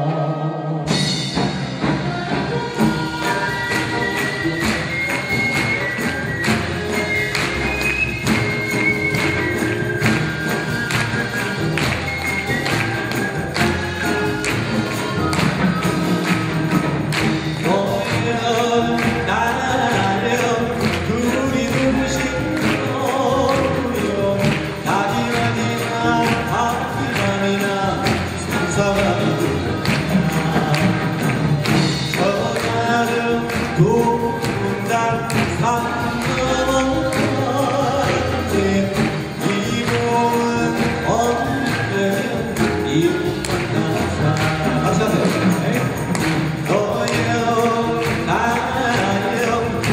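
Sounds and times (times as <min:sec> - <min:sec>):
traditional orchestra playing: 0:00.0 - 0:49.9
percussion strokes: 0:00.9 - 0:49.9
bamboo flutes: 0:02.5 - 0:16.9
man singing folk song: 0:17.5 - 0:49.9.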